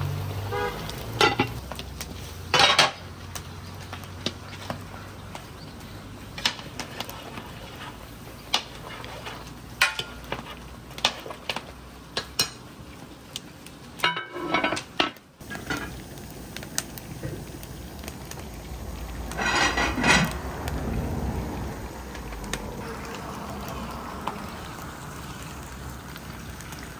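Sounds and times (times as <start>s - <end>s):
utensils clinking against pots: 1.2s - 1.6s, 2.5s - 3.0s, 6.4s - 11.6s, 12.2s - 12.7s, 14.0s - 16.0s, 19.3s - 20.4s.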